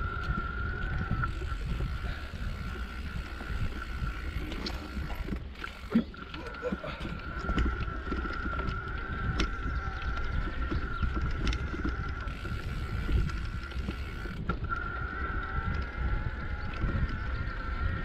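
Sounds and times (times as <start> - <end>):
bike tyres rumbling on dirt: 0.0 - 18.0
wind on microphone: 0.0 - 18.0
bike knocks and rattles: 7.4 - 14.8.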